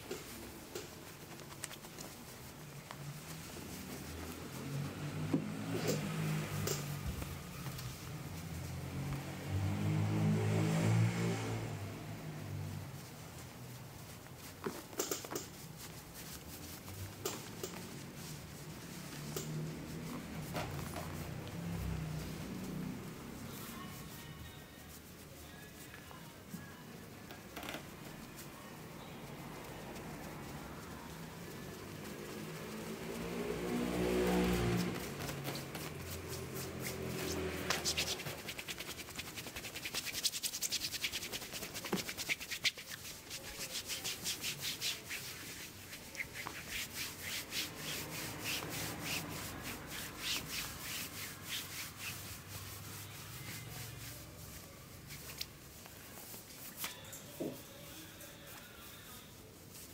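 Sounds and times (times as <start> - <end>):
hands scuffing on shirt: 0.0 - 9.4, 13.0 - 23.0, 31.7 - 57.8.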